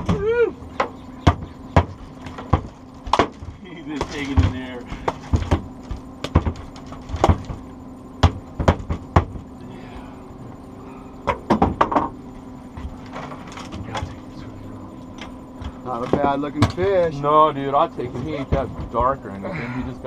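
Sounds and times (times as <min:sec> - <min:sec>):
outboard motor humming: 0:00.0 - 0:20.0
knocks on aluminum boat: 0:00.8 - 0:07.6, 0:08.2 - 0:09.5, 0:11.3 - 0:12.2.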